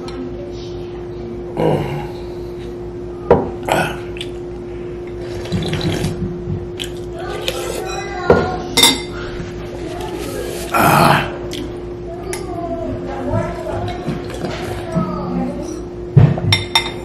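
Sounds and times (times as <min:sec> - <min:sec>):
soup slurping: 0:05.2 - 0:06.2.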